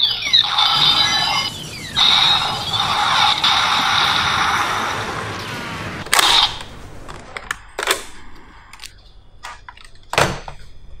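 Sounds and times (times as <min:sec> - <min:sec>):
toy gun electronic gunshots: 0:06.0 - 0:06.6.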